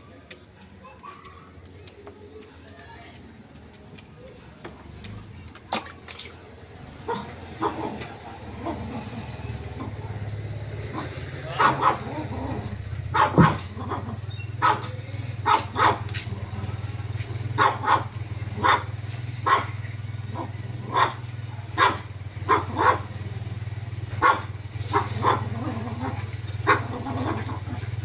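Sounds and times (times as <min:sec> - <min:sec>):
dog barking: 0:00.8 - 0:01.6, 0:07.0 - 0:28.0.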